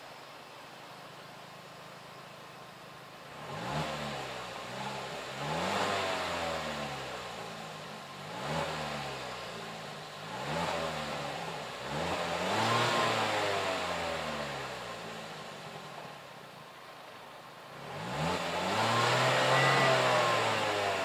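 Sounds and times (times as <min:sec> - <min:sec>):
car engine revving: 0:03.3 - 0:15.8, 0:17.7 - 0:21.0.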